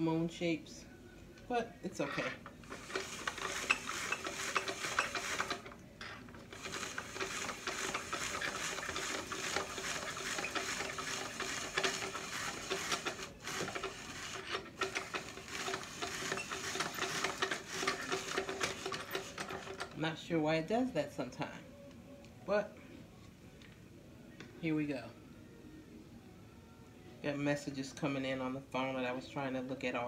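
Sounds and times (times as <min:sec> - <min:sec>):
spiralizer scraping squash: 0:02.0 - 0:20.0.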